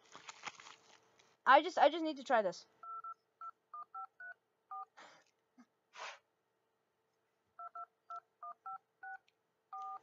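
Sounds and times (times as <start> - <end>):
phone keypad touch-tone beeps: 2.8 - 4.9, 7.6 - 10.0.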